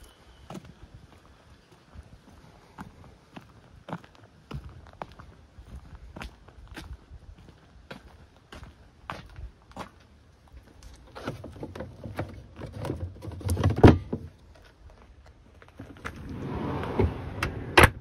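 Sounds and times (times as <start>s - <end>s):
rustling and scraping: 10.8s - 14.7s, 15.6s - 17.8s.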